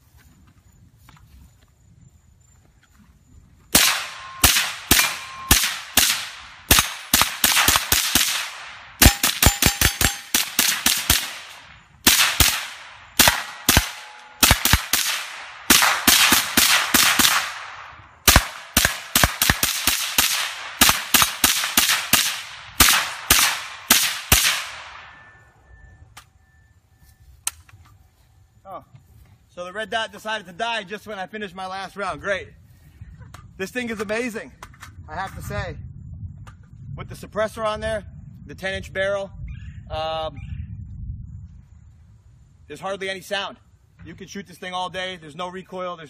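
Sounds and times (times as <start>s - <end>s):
suppressed gunshots: 3.7s - 25.3s.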